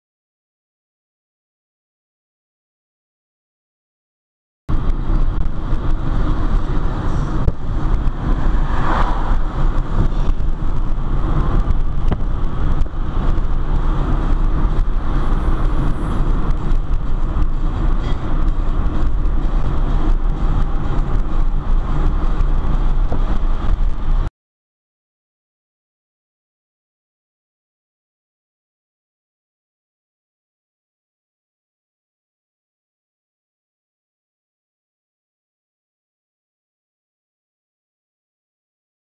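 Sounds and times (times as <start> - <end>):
car engine and road noise: 4.7 - 24.3.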